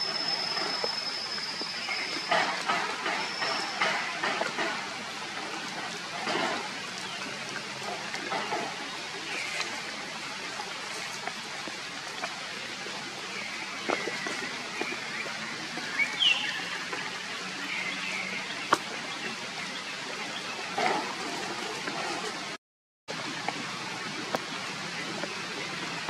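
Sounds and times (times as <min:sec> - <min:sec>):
rain falling through foliage: 0:00.0 - 0:20.6, 0:23.1 - 0:26.0.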